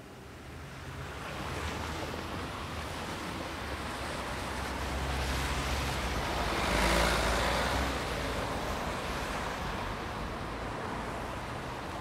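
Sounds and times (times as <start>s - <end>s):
vehicle passing by: 4.9s - 8.1s.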